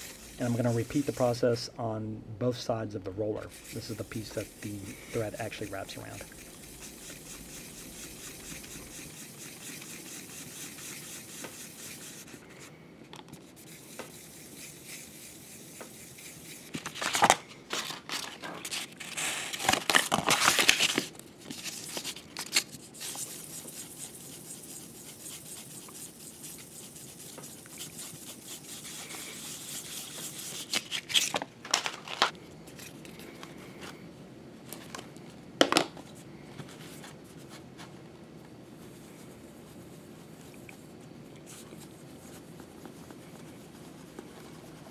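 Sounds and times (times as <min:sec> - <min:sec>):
metal scraping on wet sandpaper: 0:00.0 - 0:01.7, 0:03.4 - 0:12.7, 0:13.5 - 0:17.3, 0:21.6 - 0:31.4.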